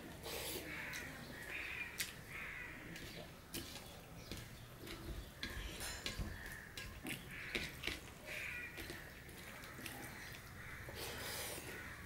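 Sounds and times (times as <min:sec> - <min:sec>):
fingers squishing wet food: 0:00.0 - 0:11.0
crow cawing: 0:00.7 - 0:02.9, 0:06.3 - 0:11.0, 0:11.6 - 0:12.0.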